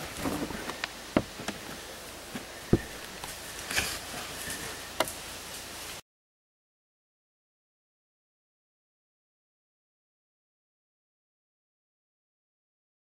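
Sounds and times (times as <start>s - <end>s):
faint hiss: 0.0s - 6.0s.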